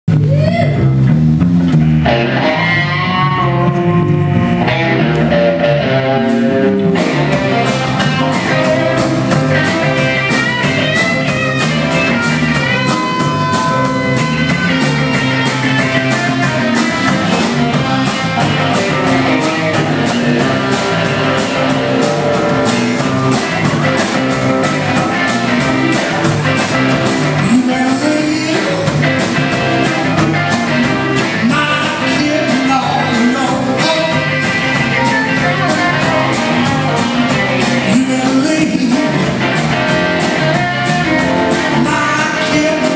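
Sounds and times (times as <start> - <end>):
bass guitar: 0.0 - 42.9
drum kit beat: 0.1 - 42.9
electric guitars: 0.1 - 42.9.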